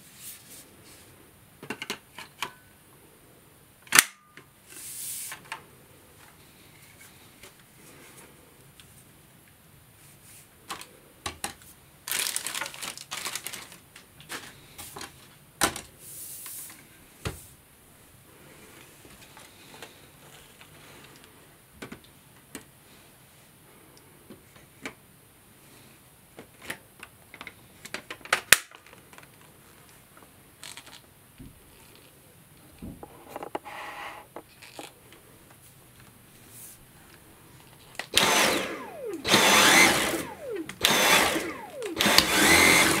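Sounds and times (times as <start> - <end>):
plastic wrapping crinkling: 12.0 - 14.6.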